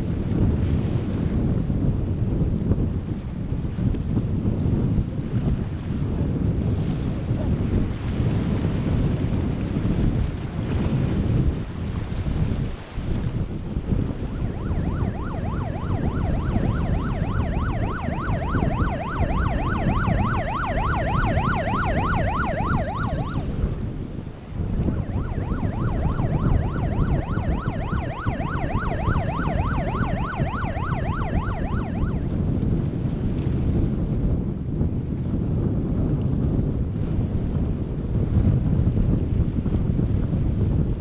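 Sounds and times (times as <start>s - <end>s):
wind rumble on microphone: 0.0s - 41.0s
boat siren yelping: 14.1s - 23.9s, 24.7s - 32.4s.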